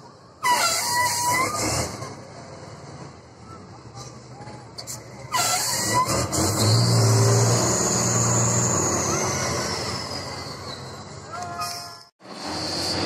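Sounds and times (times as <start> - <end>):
diesel engine revving: 5.2 - 11.2.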